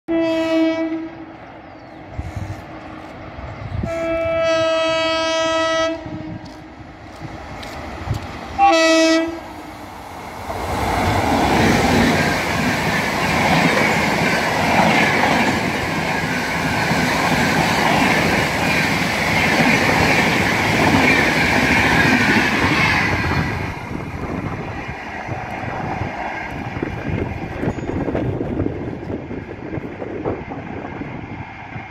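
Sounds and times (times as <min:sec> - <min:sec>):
train horn blast: 0:00.1 - 0:01.3, 0:03.8 - 0:06.7, 0:08.6 - 0:09.6
train passing at high speed: 0:00.1 - 0:31.9.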